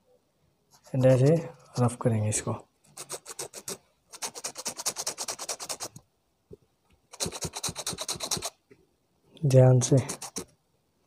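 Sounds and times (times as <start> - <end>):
knife scraping denim: 7.1 - 8.5, 10.0 - 10.5.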